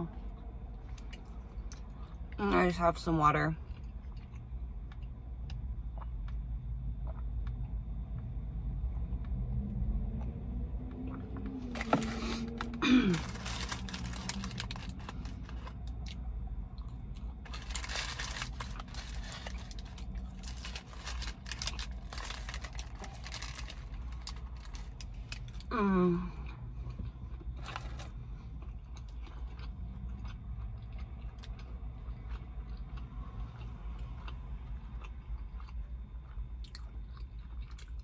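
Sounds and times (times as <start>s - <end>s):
low steady rumble from outside: 0.0s - 38.0s
paper wrapper crinkling: 11.7s - 15.8s, 17.4s - 25.1s.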